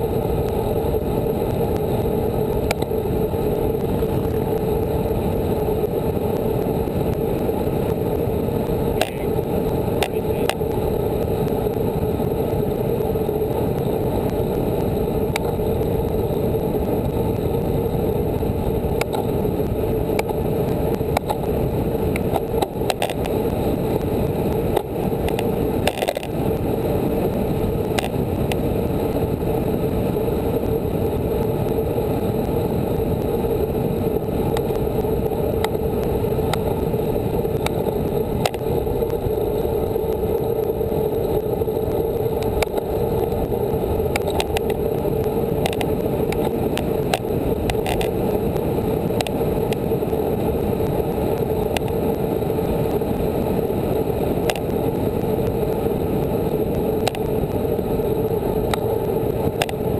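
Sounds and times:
bicycle tyre noise: 0.0s - 59.9s
ticks from road bumps: 2.6s - 2.9s, 8.9s - 9.4s, 10.0s - 10.8s, 19.0s - 19.4s, 21.0s - 23.4s, 24.7s - 26.4s, 27.9s - 28.6s, 44.1s - 44.8s, 45.6s - 48.6s.

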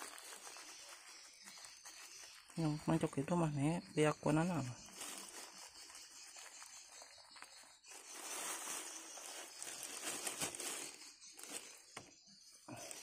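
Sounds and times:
plastic bag crinkling: 0.0s - 12.1s.

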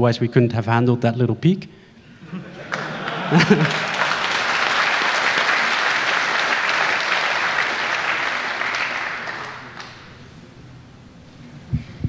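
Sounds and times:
audience applauding: 2.5s - 10.3s.

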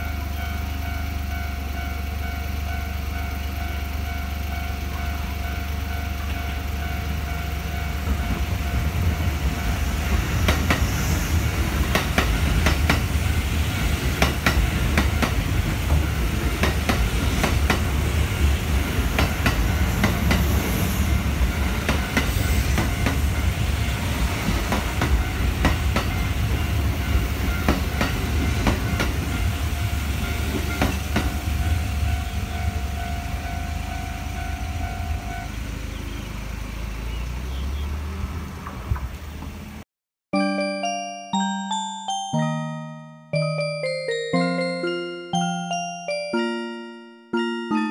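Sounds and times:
level crossing warning bell: 0.0s - 10.5s, 11.5s - 35.8s, 40.4s - 47.9s
train rumble: 0.0s - 37.4s
wheels clacking over rail joints: 11.6s - 20.6s, 24.2s - 31.8s.

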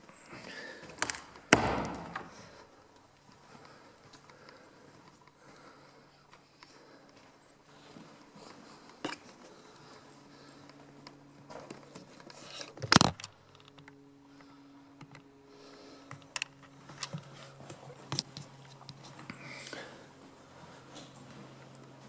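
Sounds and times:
faint low hum: 0.0s - 22.0s.

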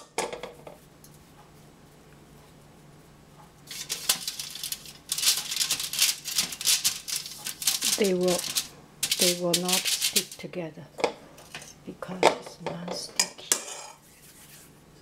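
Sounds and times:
aluminium foil crinkling: 3.6s - 10.5s.

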